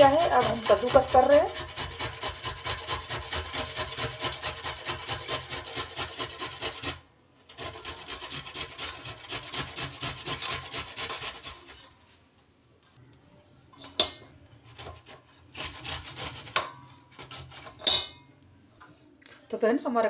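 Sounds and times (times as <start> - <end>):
radish grated on metal grater: 0.0 - 12.1, 14.7 - 18.2.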